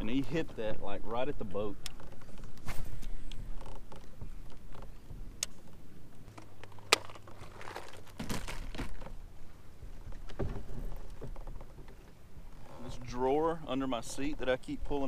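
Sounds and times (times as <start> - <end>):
fishing gear clicking and knocking: 1.8 - 2.6, 3.2 - 9.2.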